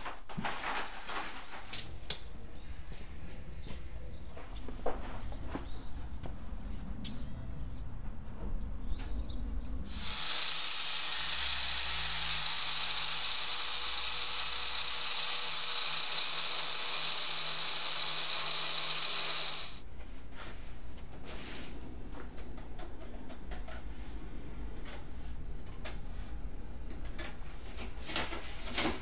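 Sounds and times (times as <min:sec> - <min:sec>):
angle grinder cutting stone: 0:09.9 - 0:19.8.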